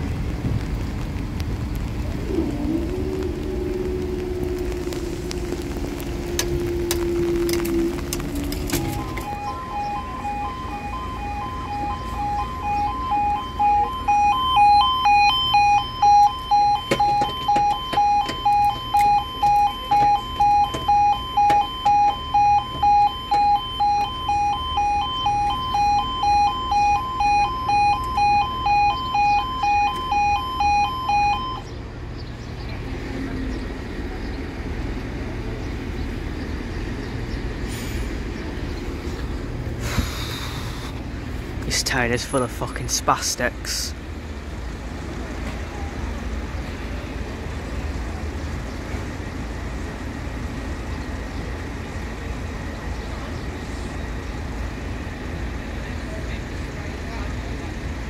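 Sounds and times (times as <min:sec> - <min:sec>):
pulsing two-tone crossing alarm: 0:05.4 - 0:31.7.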